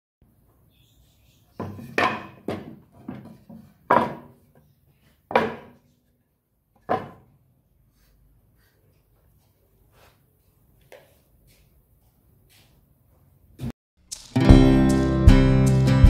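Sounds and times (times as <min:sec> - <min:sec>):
wooden boards knocking on metal: 0:01.6 - 0:04.4, 0:05.3 - 0:05.8, 0:06.8 - 0:07.3.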